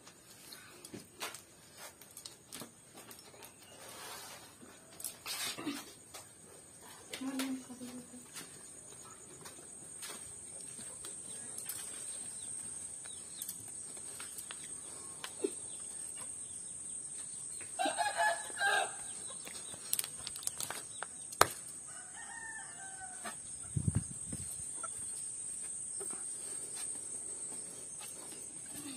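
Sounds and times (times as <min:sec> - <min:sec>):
rooster crowing: 0:17.8 - 0:19.1, 0:21.9 - 0:23.4.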